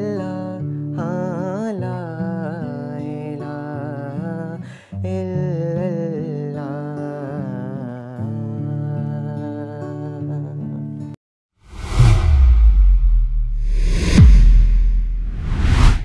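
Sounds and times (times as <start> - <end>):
man singing: 0.0 - 11.1
acoustic guitar: 0.0 - 11.2.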